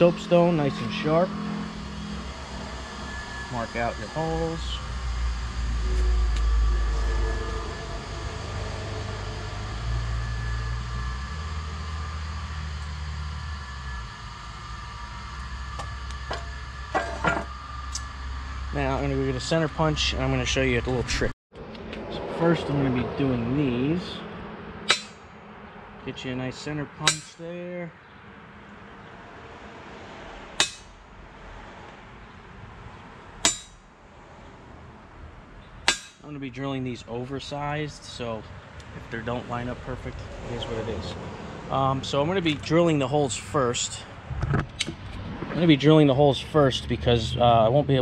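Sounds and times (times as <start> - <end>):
steady low rumble: 0.0 - 27.6
center punch snapping into steel: 27.1 - 27.4.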